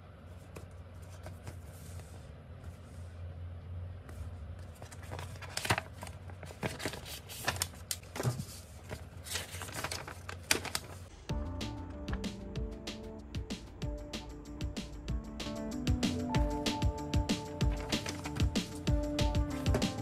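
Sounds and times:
steady low hum: 8.5s - 20.0s.

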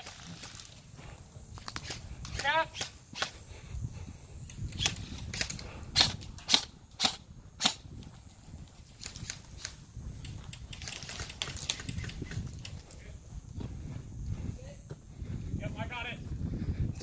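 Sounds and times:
airsoft gun shots: 4.8s - 7.8s.

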